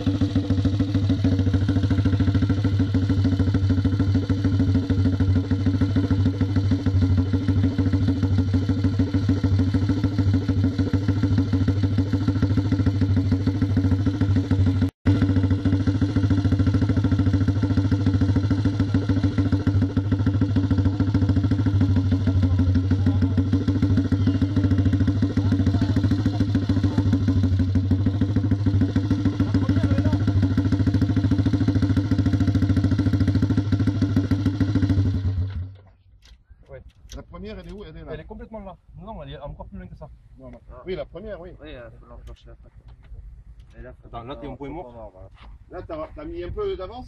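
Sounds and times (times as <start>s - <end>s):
motorcycle engine idling: 0.0s - 36.6s.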